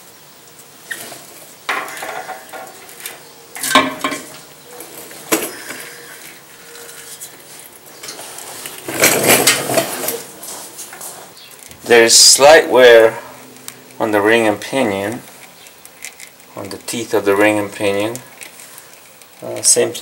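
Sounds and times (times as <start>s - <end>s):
metal clatter: 0.9s - 4.4s.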